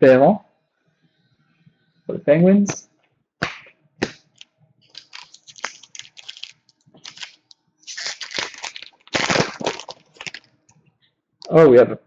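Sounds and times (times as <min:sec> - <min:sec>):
card snapping: 0:03.4 - 0:10.4
foil wrapper crinkling and tearing: 0:04.1 - 0:10.5.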